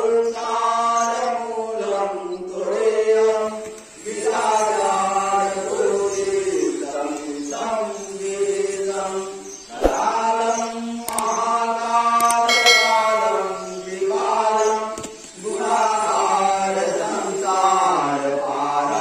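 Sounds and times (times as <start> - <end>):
voices chanting a hymn: 0.0 - 19.0
bright ringing tone: 12.5 - 14.0.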